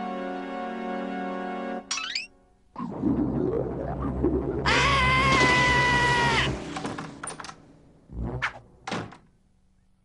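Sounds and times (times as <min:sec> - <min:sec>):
high cartoon cry: 0:04.7 - 0:06.6.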